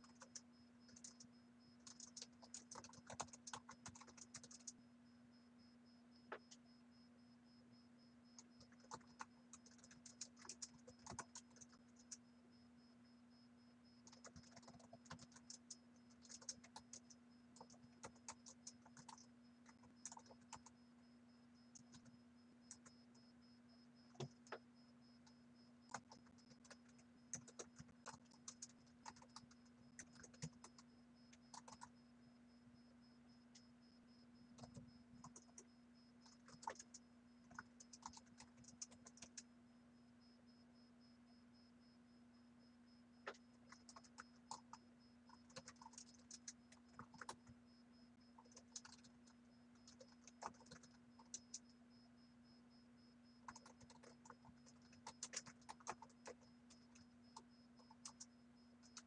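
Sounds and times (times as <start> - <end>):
typing on keyboard: 0.0 - 4.8, 8.4 - 12.2, 14.0 - 20.8, 21.7 - 22.1, 22.7 - 22.9, 24.1 - 24.6, 25.9 - 31.9, 34.5 - 39.5, 43.3 - 47.6, 48.3 - 51.7, 53.4 - 59.0
steady low hum: 0.0 - 59.0.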